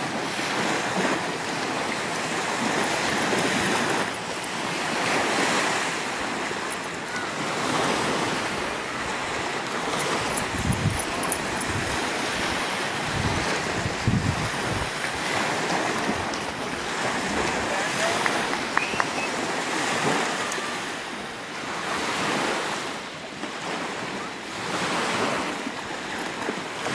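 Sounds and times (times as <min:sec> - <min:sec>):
waves washing onto sandy shore: 0:00.0 - 0:26.9
wind buffeting microphone: 0:00.1 - 0:20.2.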